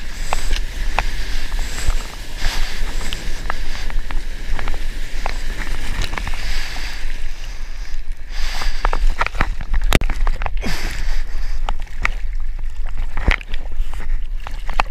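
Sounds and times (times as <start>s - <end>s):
whitewater rushing and spraying: 0.0s - 9.5s
wind buffeting microphone: 0.0s - 11.6s.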